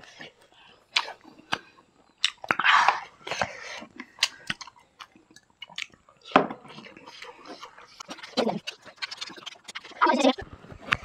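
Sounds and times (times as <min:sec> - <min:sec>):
wet mouth clicks: 0:00.0 - 0:06.0, 0:06.8 - 0:11.0
chewing and mouth smacking: 0:00.0 - 0:11.0.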